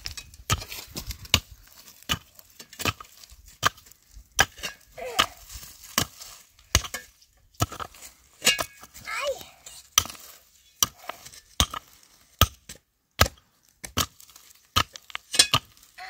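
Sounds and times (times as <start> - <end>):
blade chopping wood: 10.0 - 15.7.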